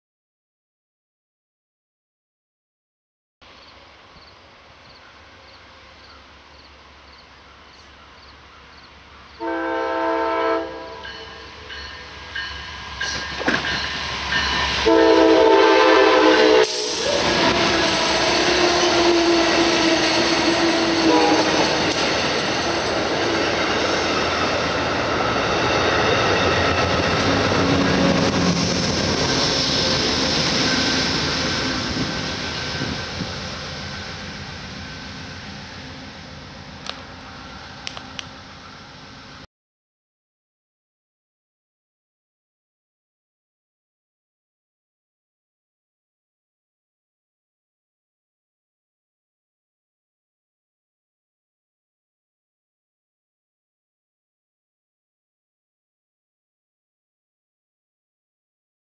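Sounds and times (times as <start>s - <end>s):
diesel locomotive engine drone: 3.4s - 39.5s
train wheel and rail noise: 3.4s - 39.5s
train horn blasts: 9.4s - 11.9s, 14.6s - 22.0s.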